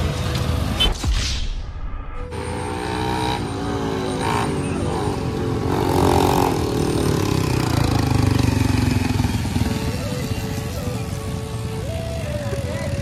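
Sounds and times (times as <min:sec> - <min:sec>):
motorcycle engines running: 0:02.3 - 0:13.0.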